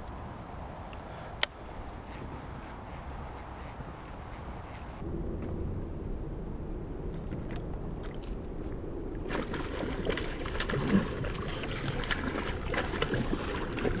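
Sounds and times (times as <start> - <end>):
wind rumble on microphone: 0.0 - 14.0
fish splashing at water surface: 9.3 - 14.0.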